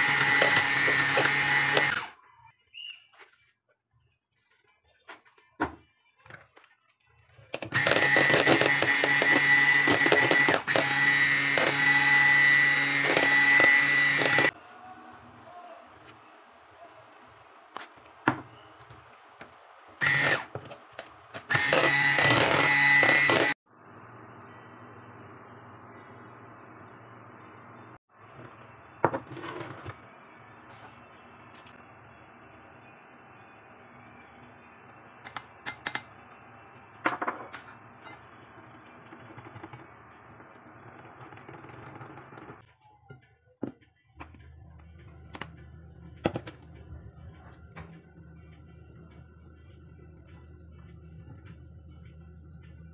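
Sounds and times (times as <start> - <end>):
electric hand mixer whining: 0.0 - 2.1, 7.7 - 14.6, 20.0 - 20.5, 21.4 - 23.6
whisking batter in a bowl: 38.8 - 42.7.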